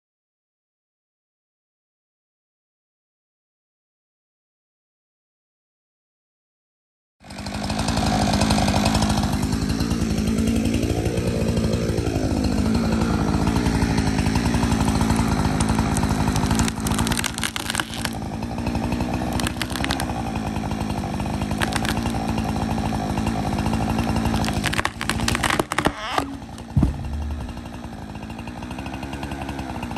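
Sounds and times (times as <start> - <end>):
chainsaw engine running: 7.2 - 29.9
tree crashing to the ground: 13.2 - 18.3, 18.9 - 20.8, 21.4 - 23.0, 23.7 - 28.7
wood cracking: 13.2 - 28.9.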